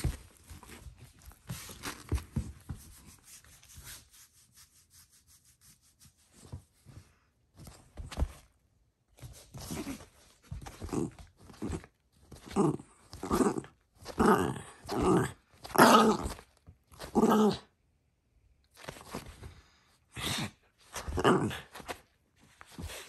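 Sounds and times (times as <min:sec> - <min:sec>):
small dog play-growling: 0:09.6 - 0:17.7, 0:20.2 - 0:22.0.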